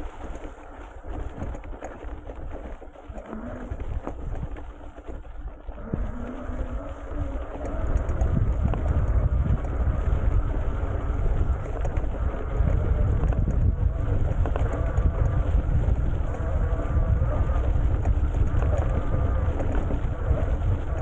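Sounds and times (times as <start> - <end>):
bike tyres rolling over field: 0.0 - 21.0
wind buffeting microphone: 0.0 - 21.0.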